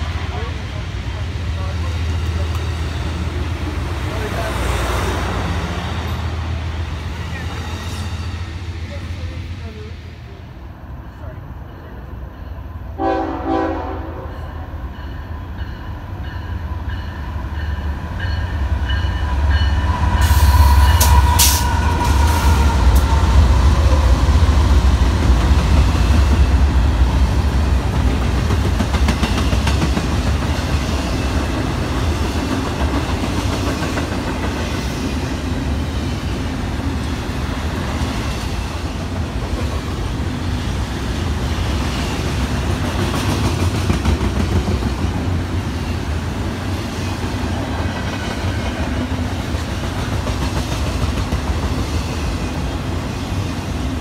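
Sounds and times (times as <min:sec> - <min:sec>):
rail cars wheel clatter: 0:00.0 - 0:54.0
train bell ringing: 0:10.9 - 0:13.3, 0:14.1 - 0:22.1
train horn blast: 0:13.0 - 0:14.6.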